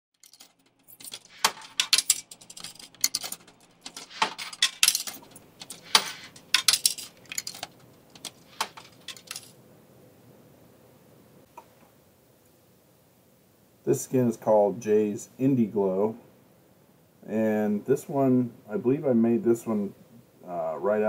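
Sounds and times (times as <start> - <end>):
sharp metallic clinks and jingles: 0.2 - 9.6.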